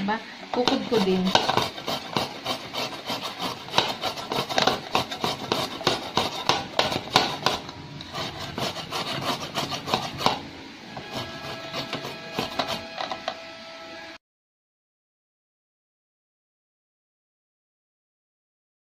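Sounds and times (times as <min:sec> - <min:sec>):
carrot grating on metal grater: 0:00.6 - 0:13.4.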